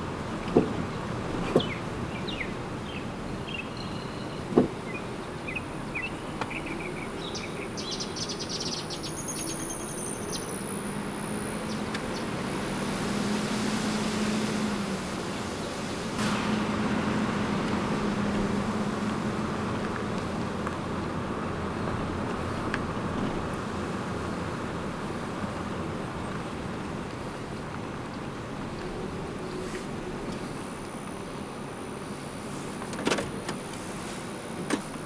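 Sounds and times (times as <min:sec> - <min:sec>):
car road and engine noise: 0:00.0 - 0:35.0
birds chirping: 0:00.9 - 0:12.7
low hum: 0:16.2 - 0:23.8.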